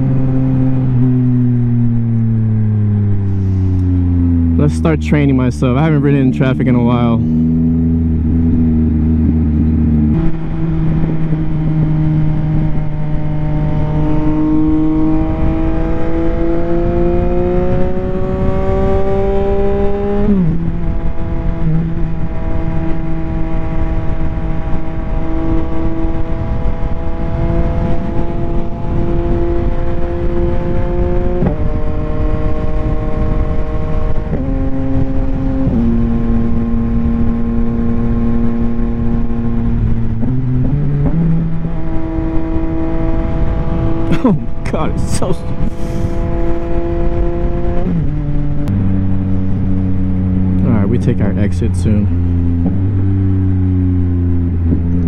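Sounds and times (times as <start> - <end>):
motorcycle engine accelerating: 0.0 - 55.0
wind rush over microphone: 7.1 - 55.0.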